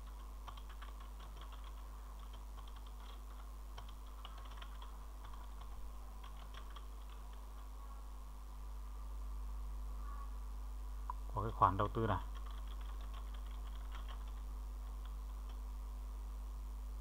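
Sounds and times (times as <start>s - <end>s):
keyboard typing: 0.0s - 7.7s, 12.2s - 15.6s
steady low hum: 0.0s - 17.0s.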